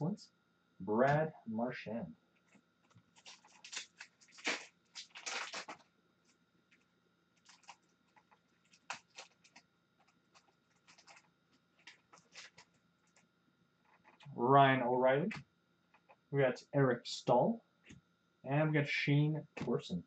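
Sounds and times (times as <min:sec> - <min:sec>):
card pack wrapper crinkling: 0:02.9 - 0:05.9, 0:07.4 - 0:13.2
cards clicking and crackling: 0:02.9 - 0:05.9, 0:07.4 - 0:13.2.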